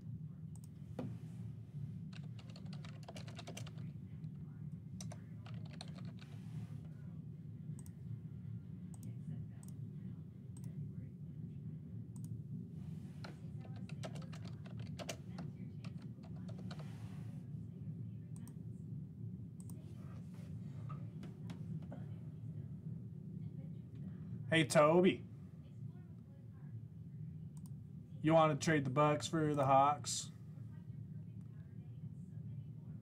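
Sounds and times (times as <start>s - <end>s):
low electrical hum: 0.0s - 33.0s.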